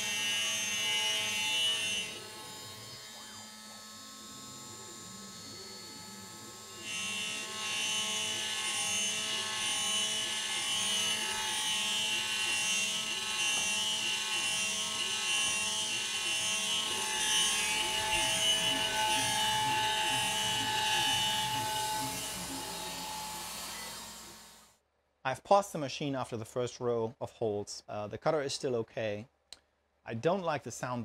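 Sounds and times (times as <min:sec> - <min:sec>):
router spindle milling metal: 0:00.0 - 0:24.6.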